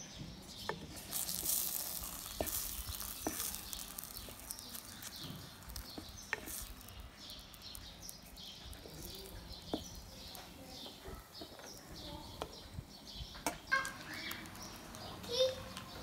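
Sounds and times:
vegetables and egg sizzling in pan: 0.5 - 16.0
wooden spatula knocking pan: 0.7 - 6.6.

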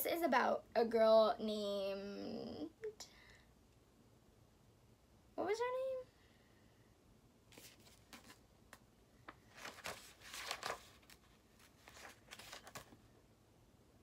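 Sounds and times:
book pages rustling: 7.5 - 13.1.

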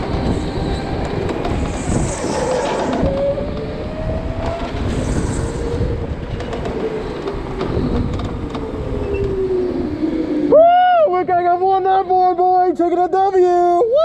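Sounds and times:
kart and tyres rumbling: 0.0 - 10.6.

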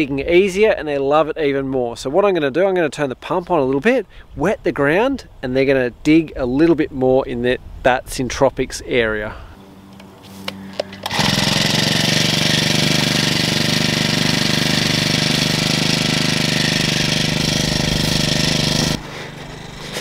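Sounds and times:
small engine water pump running: 11.0 - 20.0.

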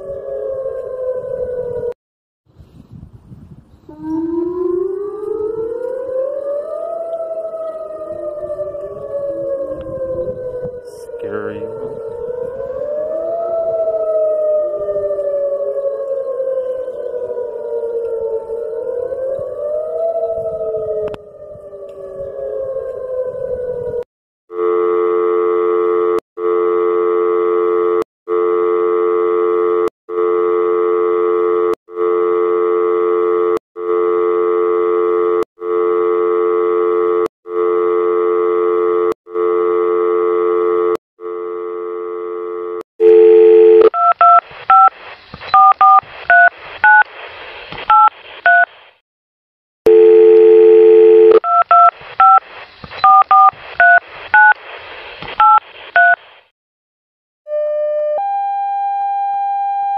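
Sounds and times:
touch-tone keypad beeps: 53.0 - 54.5.

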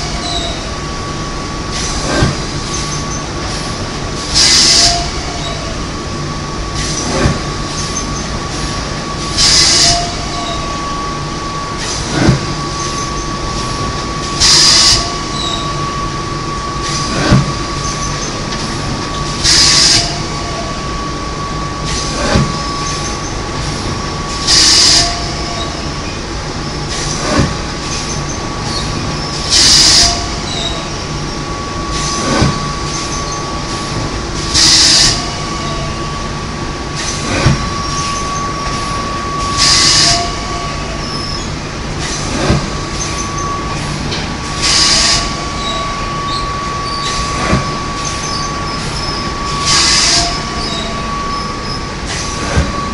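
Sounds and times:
loud hiss of air: 3.5 - 5.2, 6.8 - 17.8, 19.3 - 25.5, 29.3 - 35.6, 36.8 - 40.5, 41.8 - 52.9.

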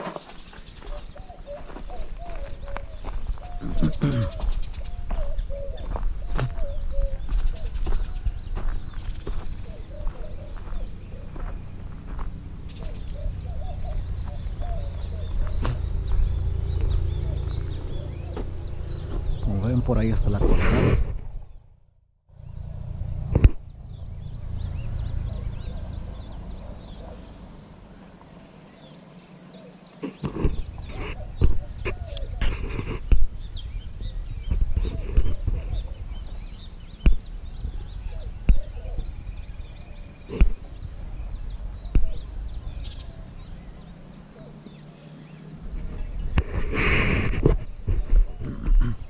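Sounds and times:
footsteps walking: 0.0 - 13.2, 13.8 - 19.5
birds calling: 0.0 - 49.0
low rumble on microphone: 1.0 - 21.7, 30.1 - 44.1, 45.6 - 49.0
low rumble: 10.8 - 27.6.

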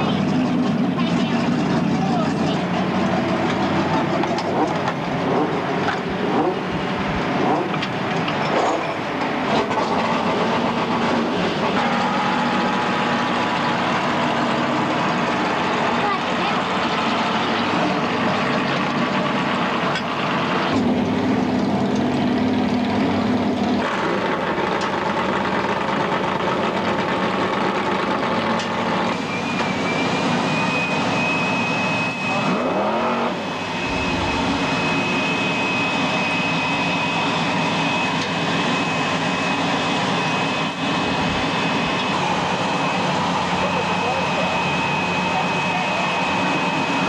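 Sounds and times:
engine running loudly: 0.0 - 47.0
thin high whine: 29.2 - 47.0.

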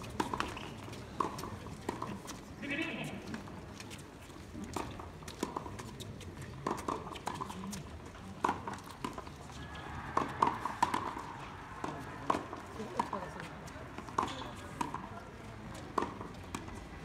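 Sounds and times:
tennis balls hit by rackets: 0.0 - 2.4, 4.6 - 17.0
tennis balls bouncing on hard court: 0.1 - 2.4, 4.6 - 6.0, 6.6 - 7.8, 8.4 - 16.9.

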